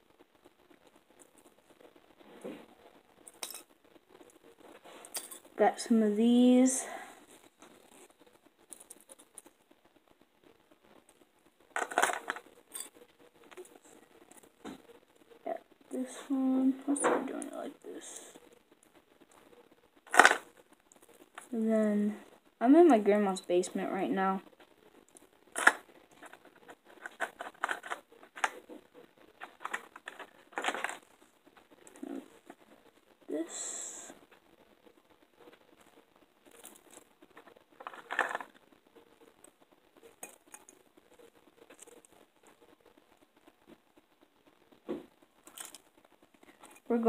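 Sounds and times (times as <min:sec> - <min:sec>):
fishing tackle clicks and rustles: 0:11.8 - 0:12.9, 0:20.1 - 0:20.5, 0:25.5 - 0:28.7, 0:29.4 - 0:31.1, 0:37.8 - 0:38.5, 0:45.4 - 0:45.8
fishing lures rattling: 0:20.1 - 0:20.5, 0:29.4 - 0:31.0, 0:37.8 - 0:38.5.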